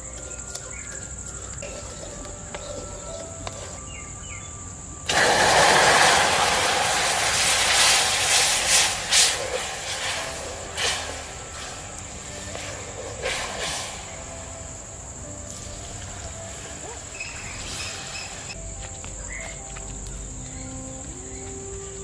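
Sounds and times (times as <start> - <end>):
crackles: 0.0 - 20.2
insect chirr: 0.0 - 22.0
ladle scraping pan: 0.2 - 4.1, 5.1 - 14.2
steam hissing and sputtering: 5.0 - 18.6.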